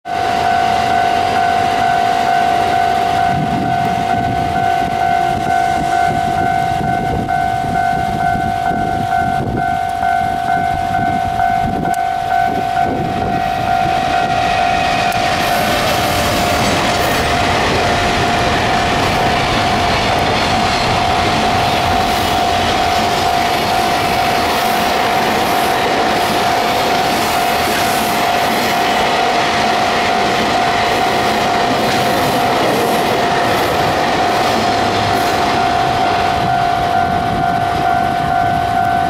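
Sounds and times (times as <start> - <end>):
freight train rumbling past: 0.1 - 39.0
level crossing warning bell: 0.1 - 39.0
wheels clacking over rail joints: 14.2 - 36.6.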